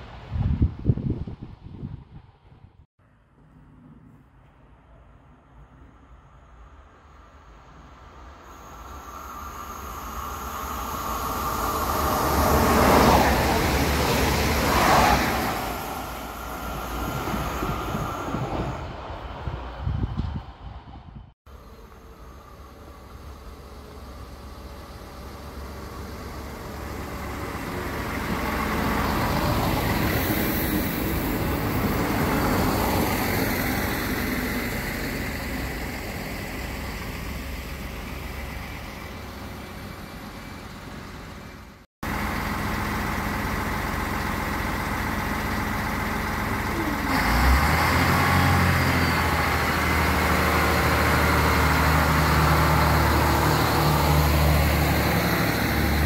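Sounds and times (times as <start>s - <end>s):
diesel railcar running: 0.0s - 56.0s
deep engine drone: 3.4s - 20.6s, 21.5s - 56.0s.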